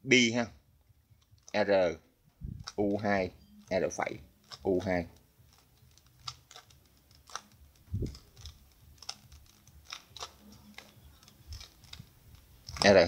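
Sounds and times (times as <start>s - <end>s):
puzzle cube plastic clicks: 2.6s - 2.9s, 4.4s - 13.0s.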